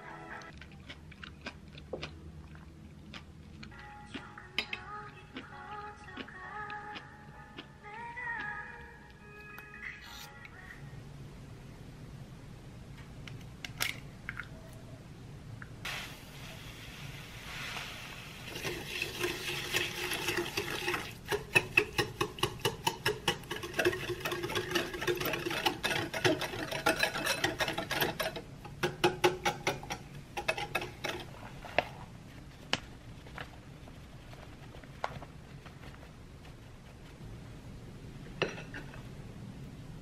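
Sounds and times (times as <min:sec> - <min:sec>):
whisk clinking in glass bowl: 0:19.8 - 0:31.2.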